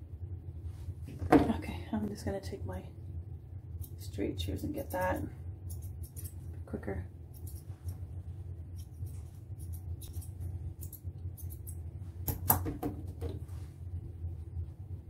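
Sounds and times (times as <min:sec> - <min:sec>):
steady low hum: 0:00.0 - 0:15.0
grooming shears snipping fur: 0:03.8 - 0:06.6, 0:07.3 - 0:12.5.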